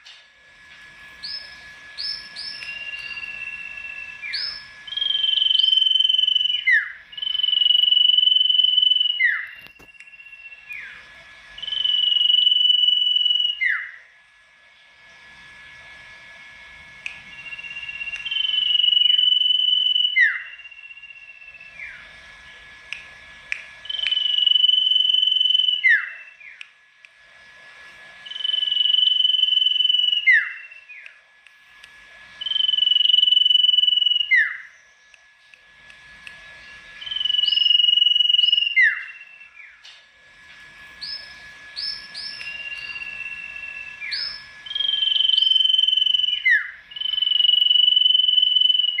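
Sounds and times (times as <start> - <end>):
songbird whistling: 1.2 - 11.0, 11.6 - 14.0, 17.1 - 22.1, 23.8 - 26.7, 28.2 - 31.2, 32.4 - 35.2, 36.6 - 39.9, 41.0 - 49.0.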